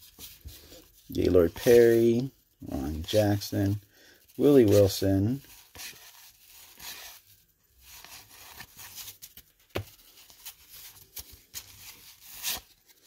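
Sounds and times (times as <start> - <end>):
cardboard cards rustling: 0.0 - 13.0.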